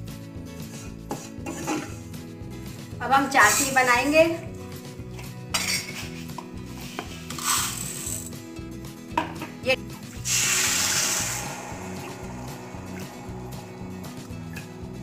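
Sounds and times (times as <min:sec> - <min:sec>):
quiet background music: 0:00.0 - 0:15.0
water pouring into a pan: 0:10.1 - 0:14.7.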